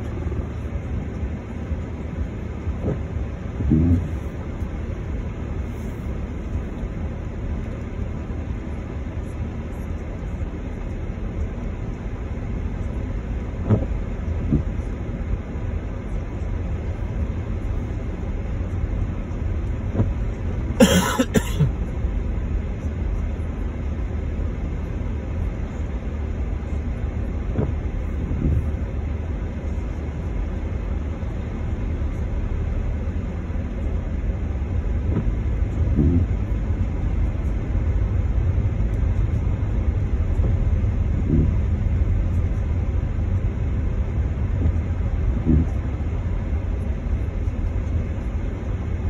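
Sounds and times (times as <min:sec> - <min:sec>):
car engine and road noise: 0:00.0 - 0:49.0.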